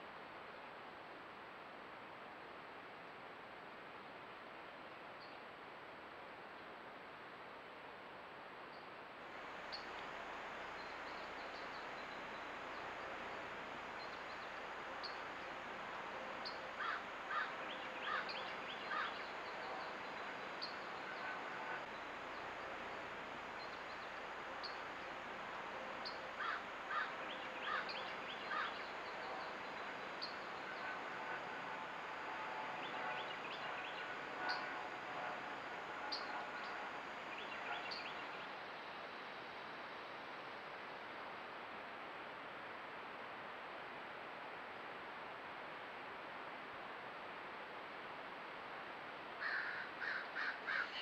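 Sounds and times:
steady background hiss: 0.0 - 51.0
crows cawing: 16.8 - 19.2, 26.4 - 28.8, 49.4 - 51.0.

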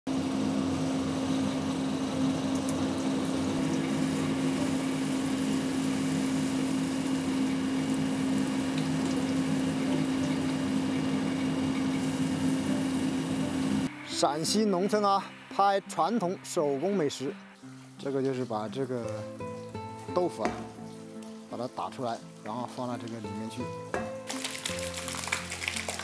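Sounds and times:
grinder motor humming: 0.1 - 13.9.

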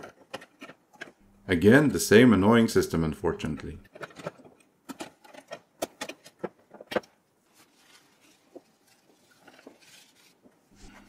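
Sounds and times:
faint handling sounds: 3.4 - 11.0.

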